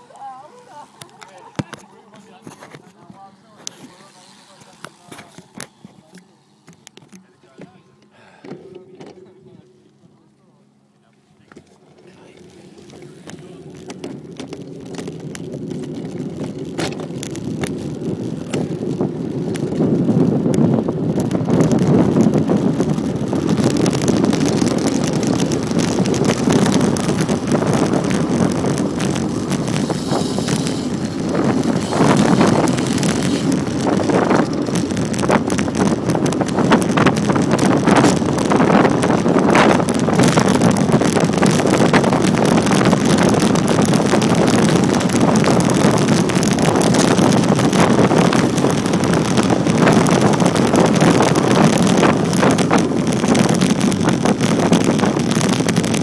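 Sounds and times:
wind rushing over microphone: 0:11.6 - 0:56.0.

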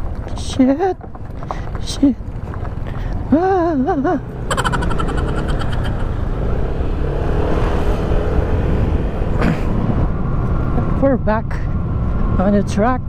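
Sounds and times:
wind and road noise: 0:00.0 - 0:13.0
scooter engine running: 0:04.5 - 0:06.3.

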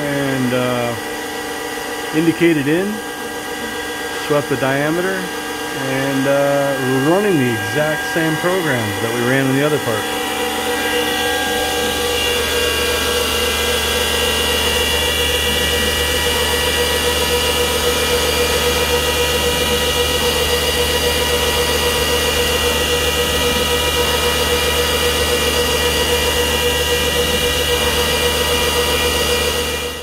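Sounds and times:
milling machine cutting metal: 0:00.0 - 0:30.0.

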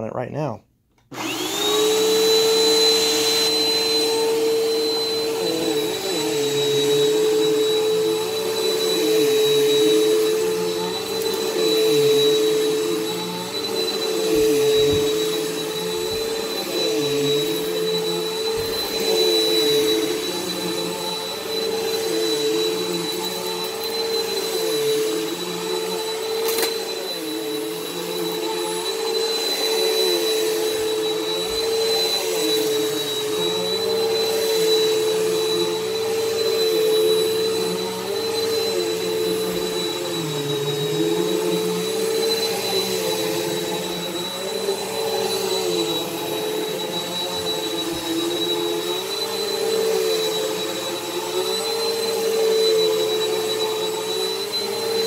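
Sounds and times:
vacuum cleaner motor whine: 0:01.0 - 0:55.0.

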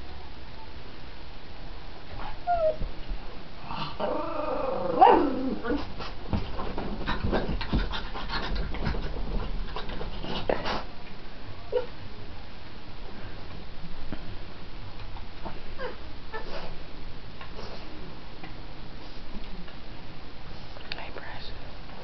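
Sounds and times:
animal cries and growling: 0:03.6 - 0:05.9.

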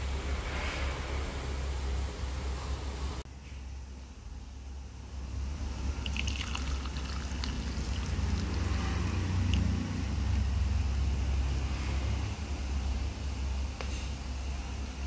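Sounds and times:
steady low hum: 0:00.0 - 0:15.0
broth pouring and splashing: 0:05.7 - 0:10.5.

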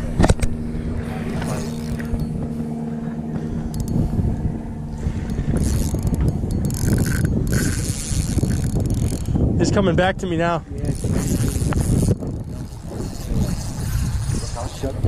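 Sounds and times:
fishing reel squeaking and whirring: 0:01.3 - 0:02.5, 0:03.6 - 0:09.4, 0:10.8 - 0:15.0.

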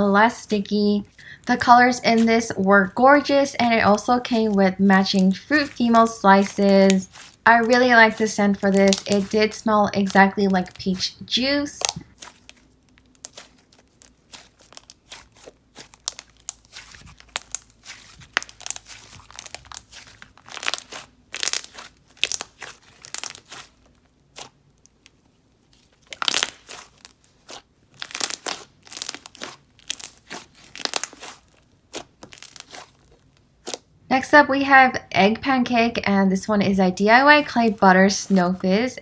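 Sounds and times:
slime squeezed by hand: 0:11.8 - 0:24.6, 0:25.7 - 0:33.8.

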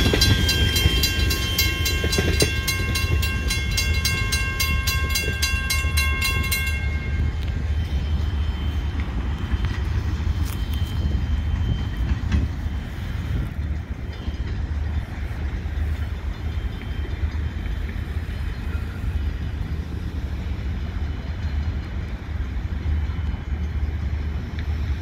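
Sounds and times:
distant diesel locomotives: 0:00.0 - 0:25.0
wind buffeting microphone: 0:00.0 - 0:25.0.

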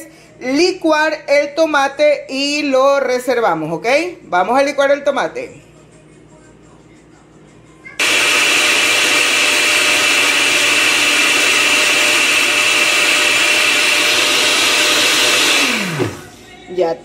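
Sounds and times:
blender running: 0:08.0 - 0:16.4.

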